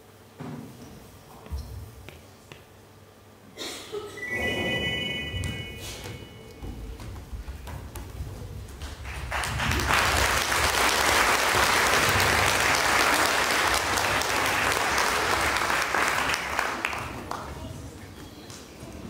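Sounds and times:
audience applauding: 0:08.8 - 0:17.5.

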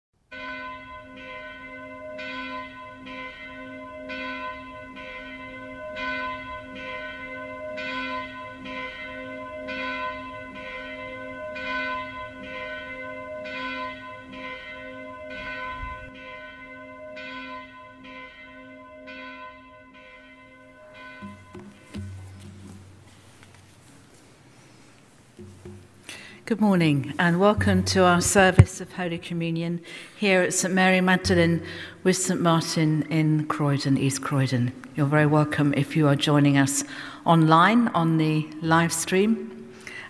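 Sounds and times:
church bells ringing: 0:00.3 - 0:23.0, 0:26.7 - 0:29.7, 0:30.6 - 0:33.4.

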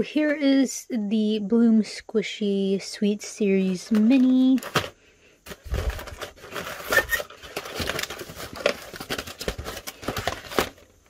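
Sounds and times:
plastic packets crinkling: 0:03.8 - 0:11.0
cardboard box being opened: 0:05.5 - 0:10.8.

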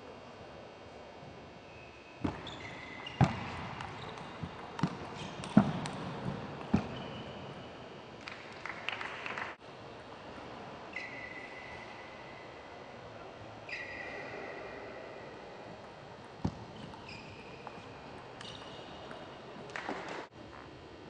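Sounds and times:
shoes squeaking on floor: 0:01.7 - 0:05.8, 0:06.7 - 0:07.8, 0:16.7 - 0:19.1.

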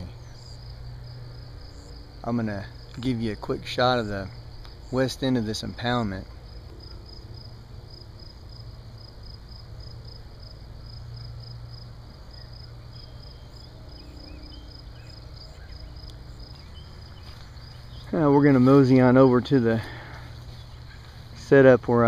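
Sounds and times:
insects chirping: 0:00.0 - 0:22.0
low steady hum: 0:00.0 - 0:22.0
faint bird calls: 0:19.2 - 0:21.4.

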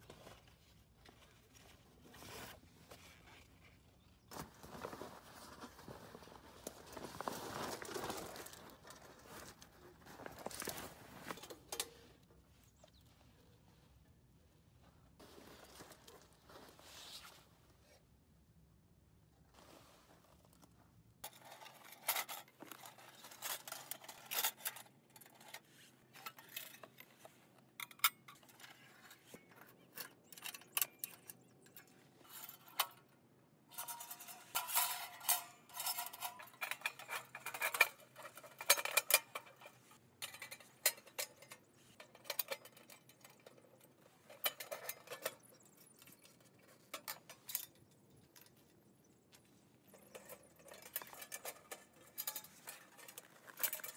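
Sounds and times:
metal panels clinking and scraping: 0:21.2 - 0:53.9.

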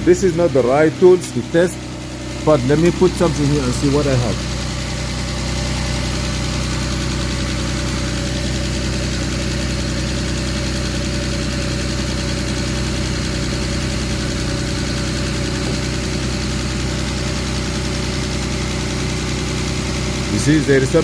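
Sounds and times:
car engine idling: 0:00.0 - 0:21.0.

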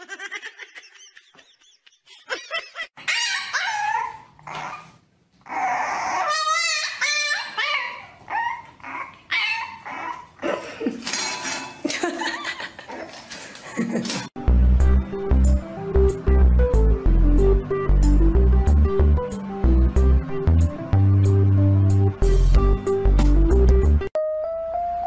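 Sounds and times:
dogs barking and yipping: 0:03.0 - 0:10.4.

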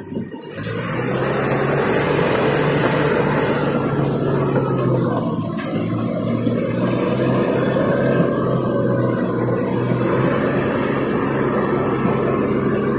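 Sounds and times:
bulldozer diesel engine running: 0:00.0 - 0:12.9.

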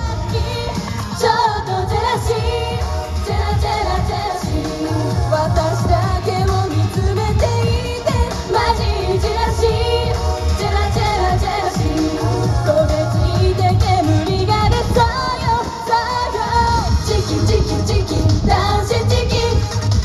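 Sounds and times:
backing track with bass beat: 0:00.0 - 0:20.0
women singing into microphones: 0:00.0 - 0:20.0.

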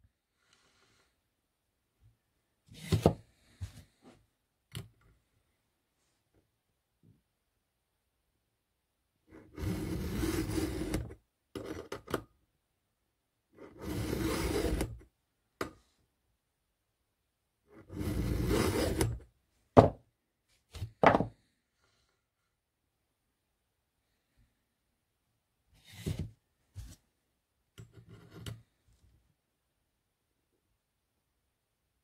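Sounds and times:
file scraping: 0:09.3 - 0:12.0, 0:13.6 - 0:15.0, 0:17.7 - 0:19.2
file strokes on chain: 0:09.4 - 0:11.1, 0:13.6 - 0:15.0, 0:17.7 - 0:19.2.

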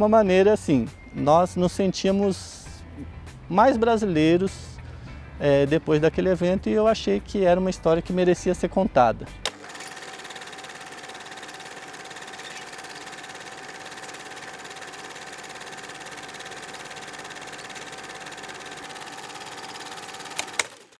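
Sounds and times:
fast-pulsing machine buzz: 0:09.5 - 0:21.0
sharp clicks: 0:20.3 - 0:20.8.

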